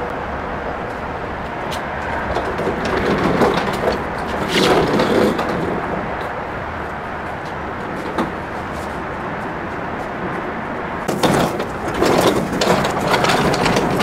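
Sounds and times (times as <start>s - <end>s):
wooden dolly rolling with knocks: 1.6s - 9.2s, 11.0s - 14.0s.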